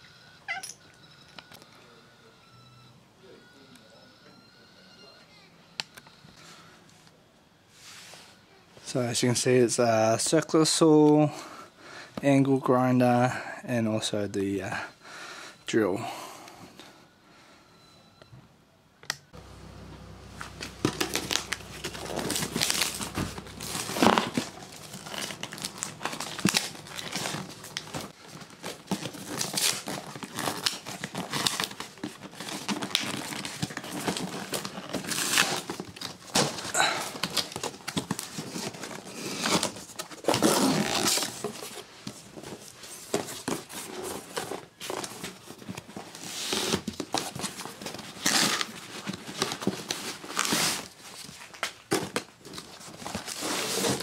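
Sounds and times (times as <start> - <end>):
cardboard rustling and crinkling: 20.4 - 54.0.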